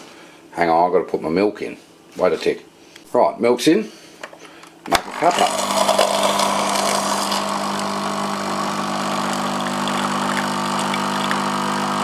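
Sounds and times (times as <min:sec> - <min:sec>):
coffee machine humming: 0:04.9 - 0:12.0.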